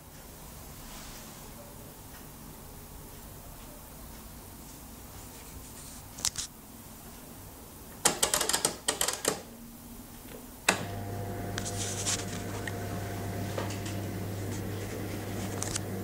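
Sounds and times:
dishwasher pump humming: 0:10.7 - 0:16.0.

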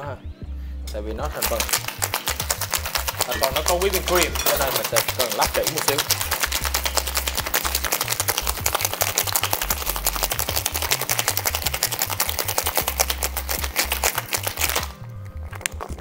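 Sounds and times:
background music with bass line: 0:00.0 - 0:16.0
ice rattling in cocktail shaker: 0:01.3 - 0:15.0.

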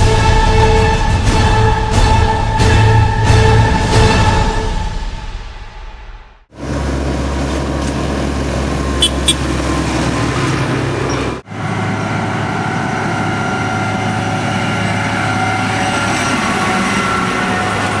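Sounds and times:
combine harvester engine whine: 0:06.5 - 0:18.0
tractor engine passing: 0:06.5 - 0:18.0.

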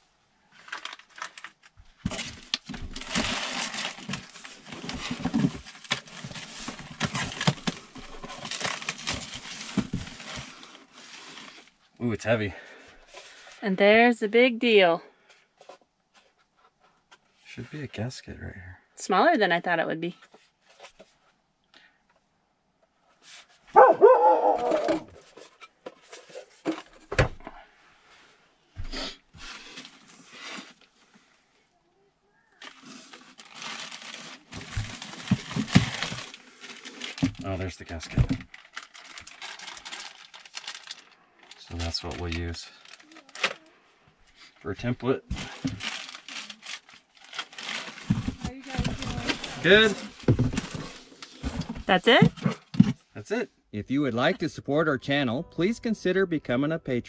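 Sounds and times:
plastic packaging crinkling: 0:00.5 - 0:11.8, 0:32.4 - 0:43.7, 0:45.3 - 0:52.1.

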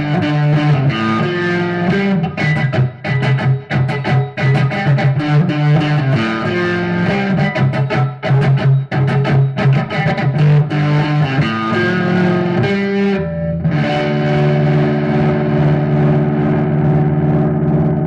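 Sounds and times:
electric guitar playing chords: 0:00.0 - 0:18.0.

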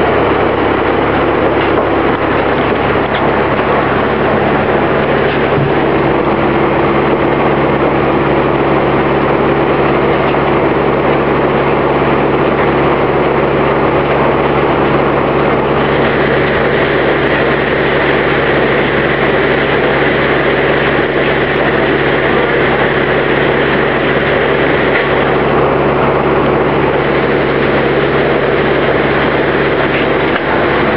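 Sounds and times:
sawmill running: 0:00.0 - 0:30.9.

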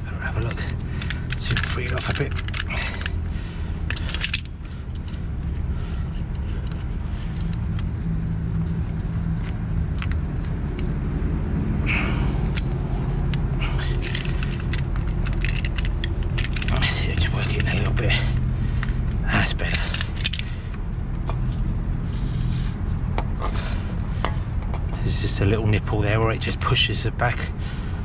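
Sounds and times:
diesel engine idling: 0:00.0 - 0:26.2
metallic clicks and clinks: 0:00.3 - 0:05.3, 0:13.3 - 0:20.6.

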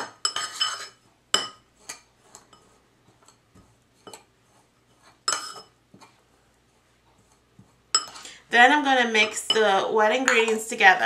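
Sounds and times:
metal spoon clinking in bowl: 0:00.1 - 0:01.6, 0:05.3 - 0:05.7, 0:07.9 - 0:08.2.

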